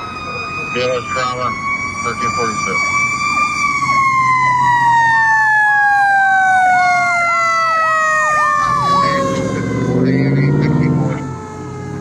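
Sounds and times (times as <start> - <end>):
siren wailing: 0.0 - 12.0
siren yelping: 0.0 - 12.0
heavy engine rumble: 8.4 - 12.0.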